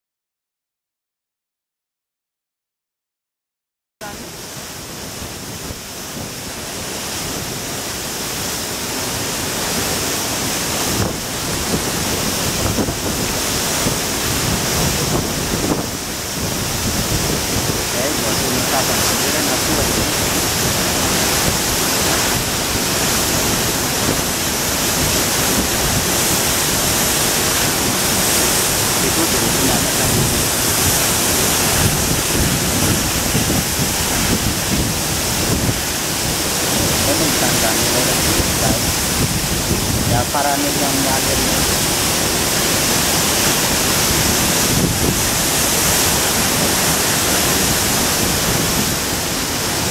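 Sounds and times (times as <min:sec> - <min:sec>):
waterfall rushing: 0:04.0 - 0:49.9
wind buffeting microphone: 0:10.6 - 0:49.9.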